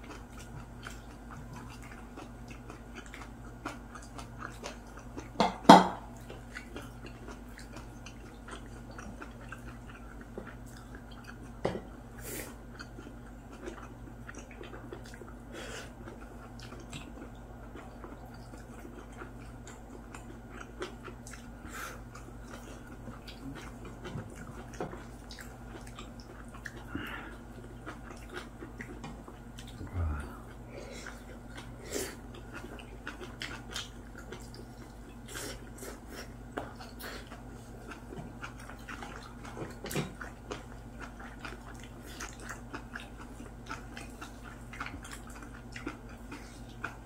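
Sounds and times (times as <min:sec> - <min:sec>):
people chewing and slurping: 0:00.0 - 0:47.0
steady low hum: 0:00.0 - 0:47.0.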